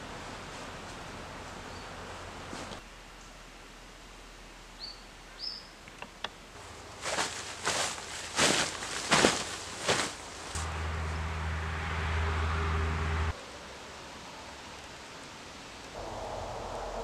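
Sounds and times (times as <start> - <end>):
steady background hiss: 0.0 - 11.4, 12.6 - 17.0
rustling: 2.4 - 2.8, 6.6 - 10.7.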